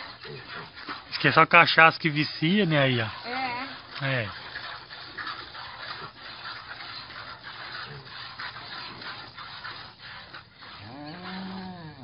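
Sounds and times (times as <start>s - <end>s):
piglet wet sucking and smacking: 0.0s - 12.0s
low drawn-out animal call: 3.1s - 12.0s.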